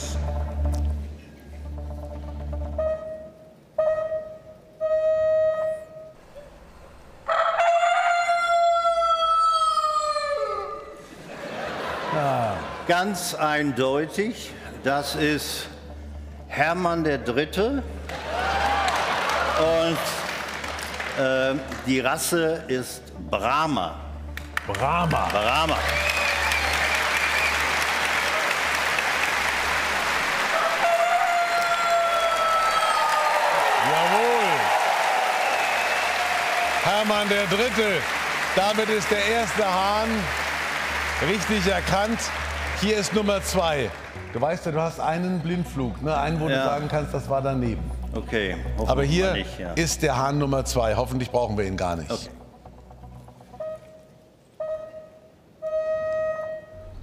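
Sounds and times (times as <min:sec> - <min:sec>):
rooster crowing: 0:07.2 - 0:10.9, 0:30.5 - 0:33.9
audience applauding: 0:18.0 - 0:22.3, 0:24.3 - 0:45.0.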